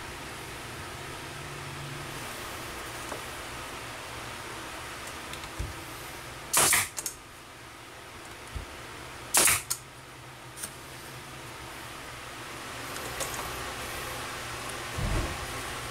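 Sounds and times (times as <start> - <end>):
nail gun firing: 6.5 - 7.2, 9.3 - 9.8.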